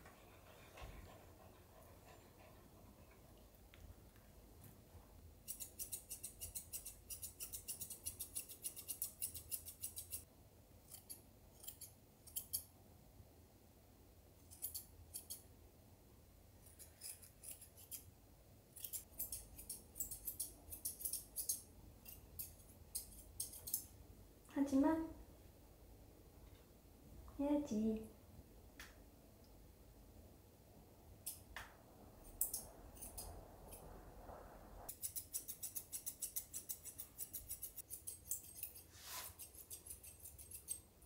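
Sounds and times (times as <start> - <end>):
scissors snipping fur: 5.5 - 10.2, 10.9 - 12.7, 14.5 - 15.4, 18.8 - 23.9, 34.9 - 40.9.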